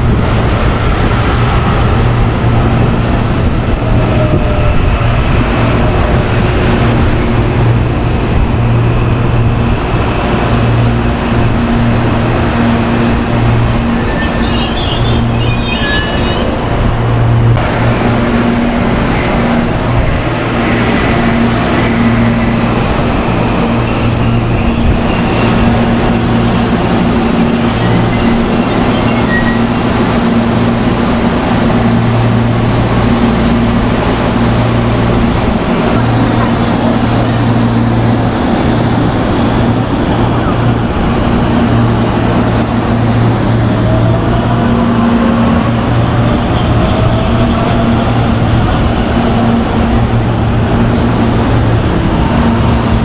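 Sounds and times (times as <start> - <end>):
electric train rumbling: 0.0 - 53.0
short high chirps: 14.1 - 16.6.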